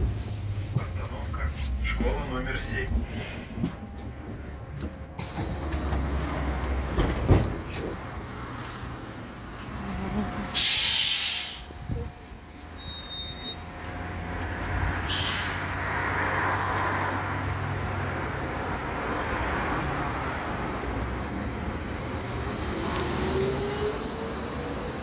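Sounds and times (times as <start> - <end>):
vehicle and tyres humming: 0.0 - 25.0
compressed air hiss: 10.5 - 11.8, 15.0 - 15.8.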